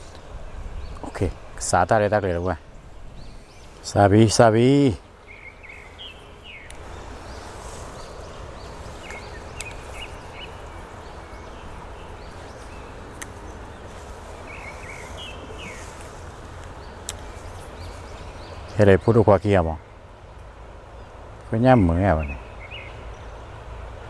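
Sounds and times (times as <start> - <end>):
stream rushing: 0.0 - 24.0
bird chirps: 2.3 - 20.4, 21.0 - 23.5
faint clicks: 9.0 - 10.2, 13.1 - 13.4, 16.0 - 17.8.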